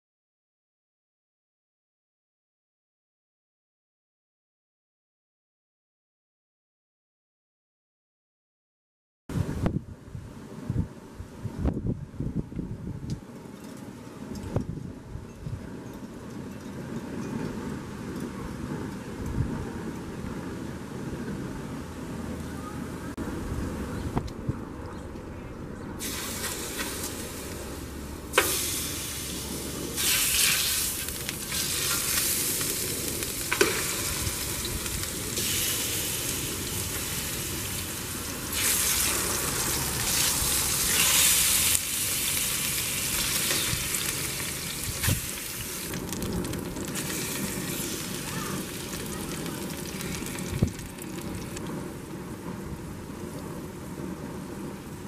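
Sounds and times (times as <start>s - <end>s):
chicken sizzling in hot oil: 26.0s - 27.5s, 28.3s - 51.6s.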